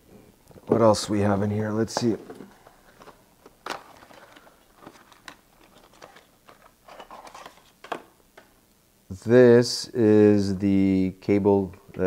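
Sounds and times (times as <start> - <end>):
cardboard rustling and crinkling: 0.7 - 8.1.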